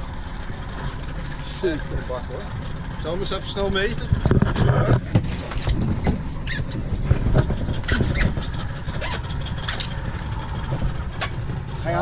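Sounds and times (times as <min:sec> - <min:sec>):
boat engine rumble: 0:00.0 - 0:12.0
short squeaks: 0:05.5 - 0:06.9, 0:07.5 - 0:09.9.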